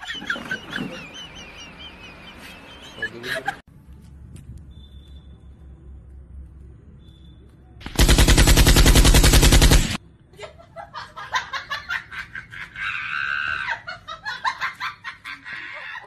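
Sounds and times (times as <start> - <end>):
automatic gunfire: 7.8 - 10.0.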